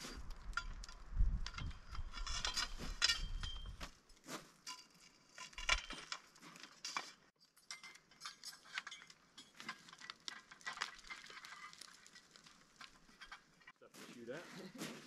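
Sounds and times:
small metal pieces clinking: 0.5s - 3.8s, 4.7s - 13.7s.

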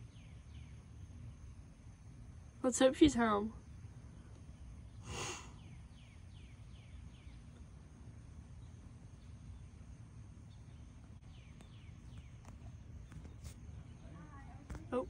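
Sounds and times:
bird chirping: 0.0s - 1.4s, 4.1s - 7.8s, 10.4s - 15.0s.

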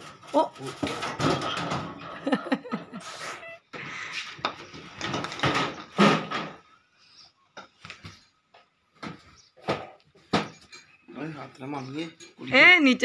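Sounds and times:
bedding rustling and scraping: 0.0s - 6.8s
knocks and clanks on metal box: 0.8s - 2.4s, 5.0s - 6.6s, 9.0s - 10.6s.

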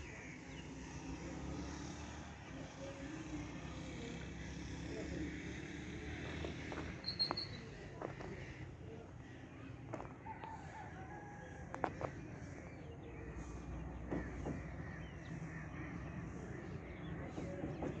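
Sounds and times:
low open air rumble: 0.0s - 18.0s
bird calls: 6.2s - 18.0s
distant rooster crowing: 10.0s - 12.0s.

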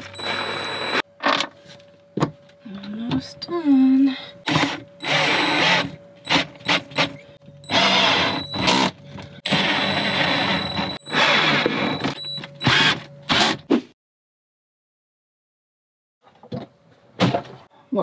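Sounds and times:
cordless drill driving screws: 4.5s - 8.9s.

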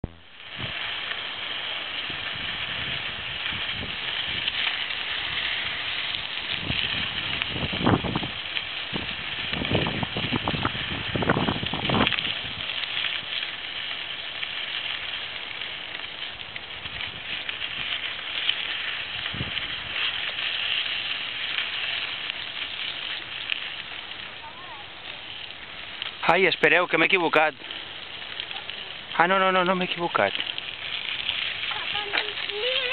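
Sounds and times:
wind on microphone: 0.0s - 0.9s, 2.0s - 12.9s, 18.8s - 21.2s
bicycle tyres crunching on dirt: 0.0s - 32.9s.

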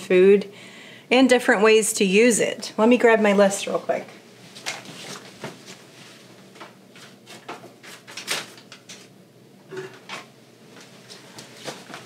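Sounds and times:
handling things at kitchen counter: 9.7s - 12.0s.

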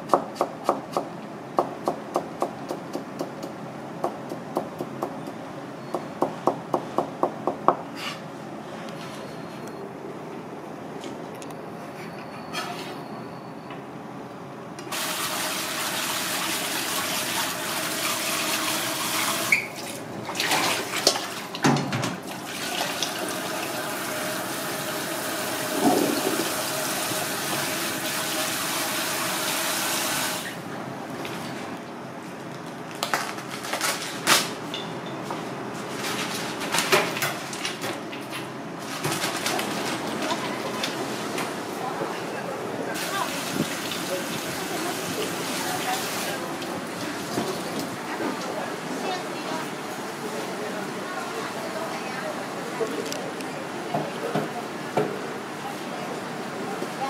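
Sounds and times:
tap water running into colander: 14.9s - 21.6s, 22.2s - 30.6s, 43.0s - 48.0s.

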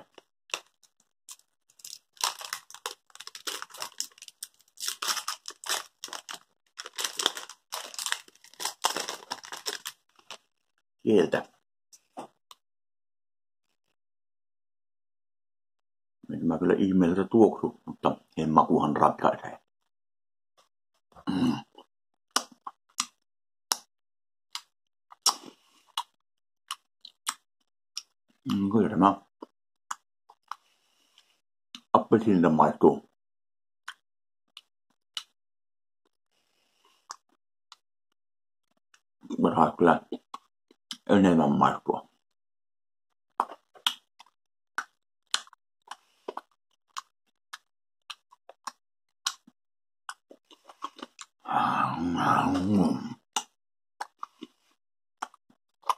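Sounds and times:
paper wrapper rustling and tearing: 1.3s - 10.4s
chewing mouth clicks and lip smacks: 43.4s - 49.5s, 50.1s - 51.3s, 55.2s - 55.9s
man grunting: 51.5s - 53.2s.

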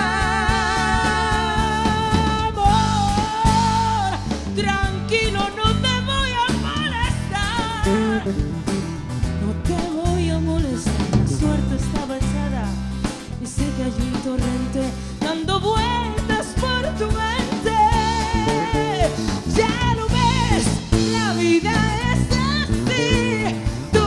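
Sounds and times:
woman singing: 0.0s - 8.3s, 9.4s - 24.0s
acoustic guitar: 0.0s - 24.0s
drum kit: 0.0s - 24.0s
electric guitar: 0.0s - 24.0s.

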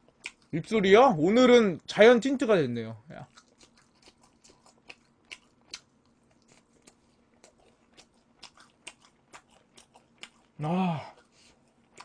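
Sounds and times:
wet mouth chewing smacks: 3.3s - 12.0s.

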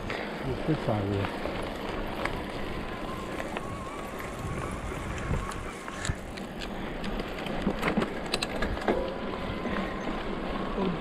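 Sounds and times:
bike tyres on loose gravel: 0.0s - 11.0s
wind on microphone: 2.0s - 6.4s.

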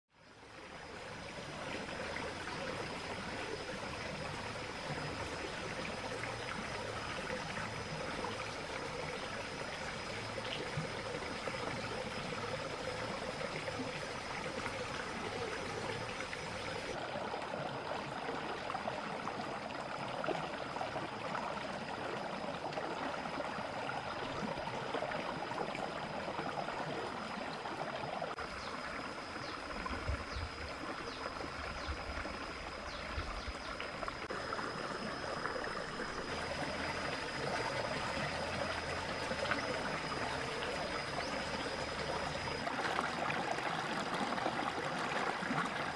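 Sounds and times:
stream babbling over rocks: 0.8s - 45.9s.

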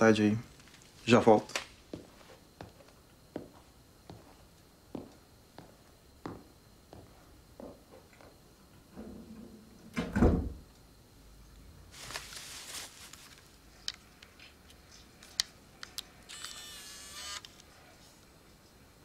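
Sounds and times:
door shutting with heavy thump: 10.0s - 10.6s
camera whir: 15.2s - 17.8s
camera control clicks: 15.9s - 17.7s
camera handling rustle: 16.3s - 17.7s.

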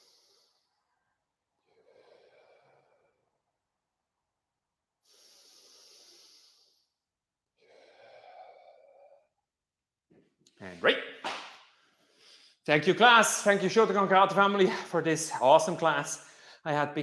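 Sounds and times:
man breathing slowly and deeply: 0.0s - 3.5s, 5.0s - 9.4s, 11.7s - 12.6s, 16.2s - 16.6s.

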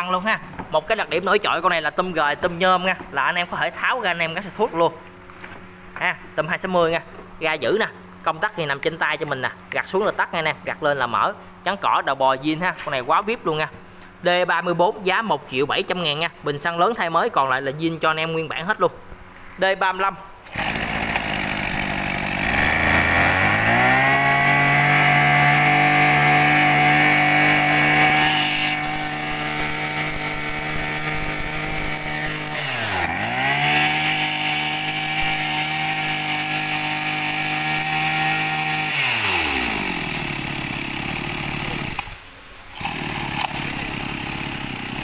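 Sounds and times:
brush cutter engine revving: 20.5s - 45.0s.

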